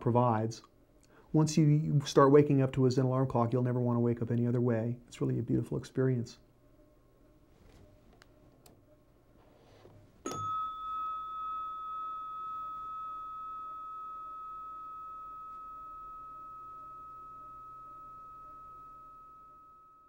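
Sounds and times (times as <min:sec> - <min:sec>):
metal chime bar ringing: 0:10.2 - 0:20.0.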